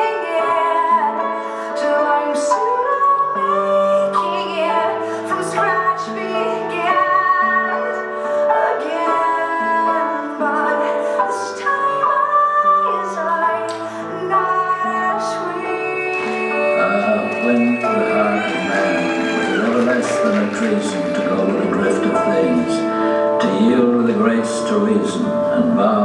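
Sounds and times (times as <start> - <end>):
woman singing: 0.0 - 19.9
slow music over loudspeakers: 0.0 - 26.0.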